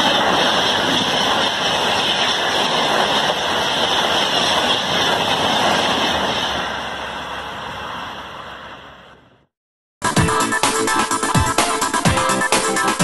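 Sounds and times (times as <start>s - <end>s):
train rushing past: 0.0s - 9.4s.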